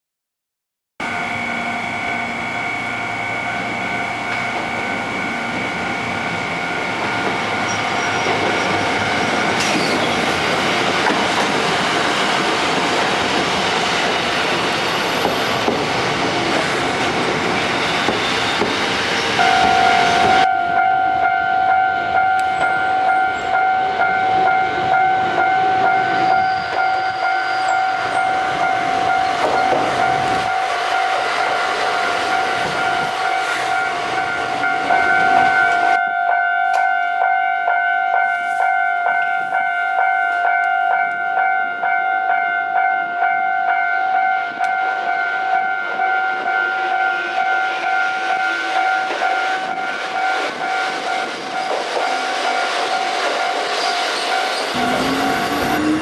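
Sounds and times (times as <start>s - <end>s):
low pulsing crossing bell: 1.0s - 9.6s, 19.4s - 56.0s
electric train passing: 1.0s - 56.0s
level crossing alarm ringing: 19.3s - 56.0s.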